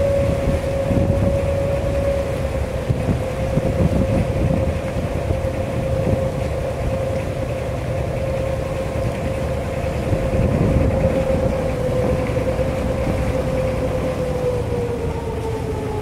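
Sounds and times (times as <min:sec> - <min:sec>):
boat engine rumbling: 0:00.0 - 0:16.0.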